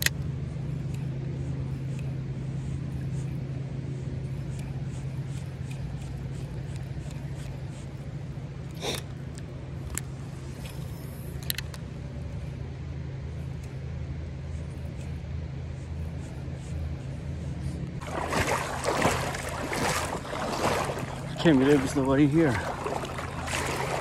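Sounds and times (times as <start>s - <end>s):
steady low hum: 0.0s - 24.0s
creek water splashing: 18.0s - 24.0s.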